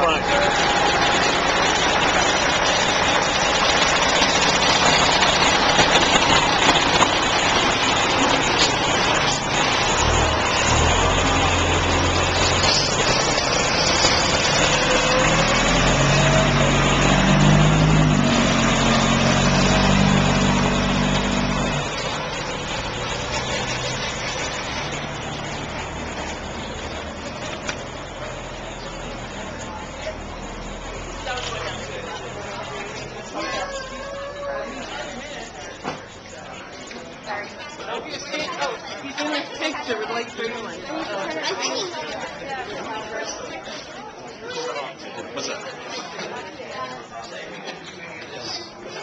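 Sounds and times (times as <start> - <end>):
deep heavy engine drone: 0.0 - 37.1
road traffic noise: 0.0 - 49.0
engine running close by: 0.2 - 33.7.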